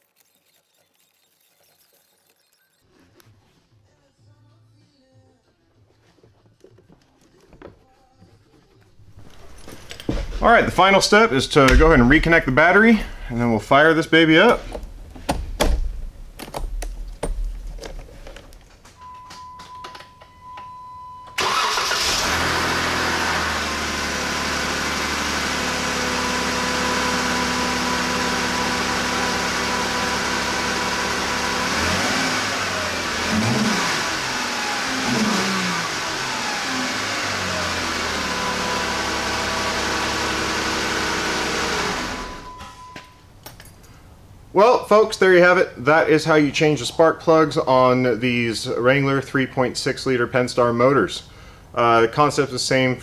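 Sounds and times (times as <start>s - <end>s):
car engine starting and idling: 9.1s - 15.3s, 18.8s - 43.0s
steady beep: 19.0s - 21.4s, 42.4s - 43.2s.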